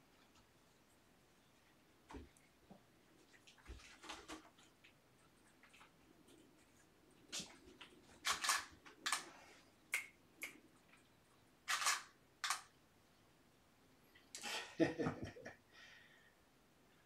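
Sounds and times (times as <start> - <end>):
camera shutter firing: 8.2 - 9.2, 11.7 - 12.7
camera handling noise: 8.2 - 9.3, 11.7 - 12.7.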